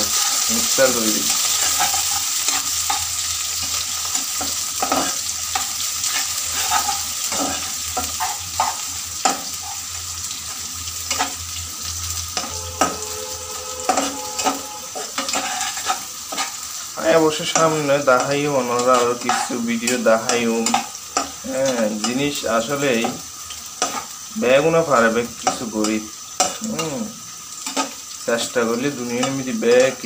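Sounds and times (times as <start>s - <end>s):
spatula scraping pan: 0.0s - 10.0s, 12.4s - 22.2s, 23.8s - 24.2s
onions sizzling in oil: 0.0s - 30.0s.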